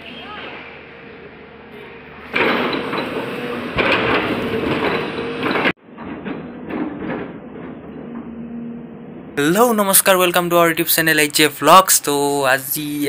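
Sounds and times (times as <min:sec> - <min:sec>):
excavator harsh mechanical noise: 0:00.0 - 0:05.8.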